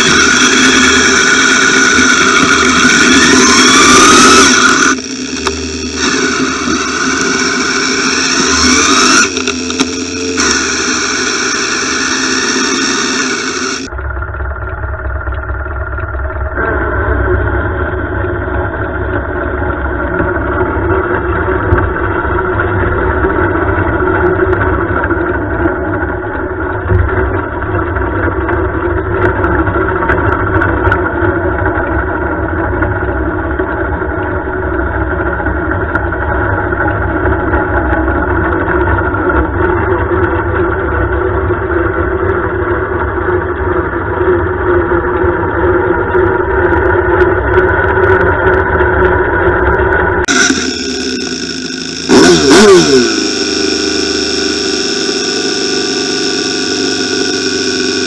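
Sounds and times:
lawn tractor engine idling: 4.7 - 19.6, 50.3 - 58.0.

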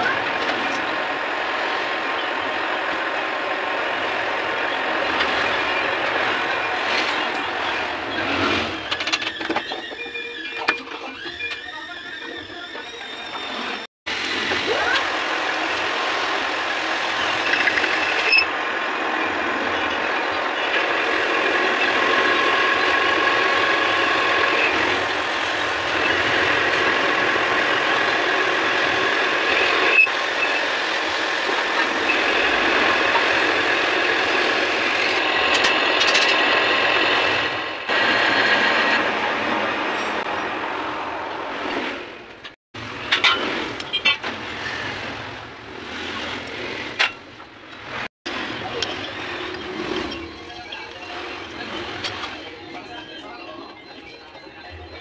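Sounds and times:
metal lathe machining: 15.0 - 41.4.

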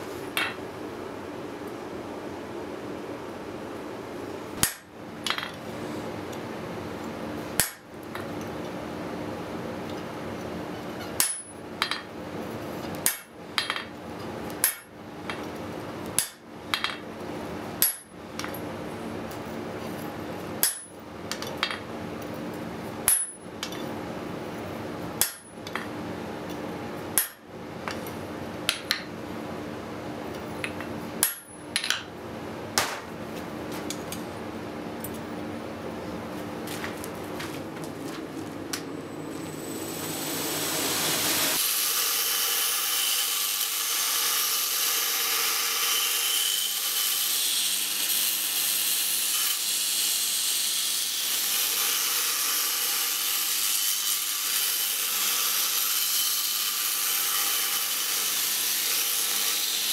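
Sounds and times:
steady low hum: 0.0 - 41.6
hammer striking steel on anvil: 4.6 - 5.6, 7.6 - 7.9, 11.1 - 12.1, 20.6 - 21.0, 23.1 - 23.8, 25.2 - 25.8, 27.2 - 27.4, 30.7 - 32.1.

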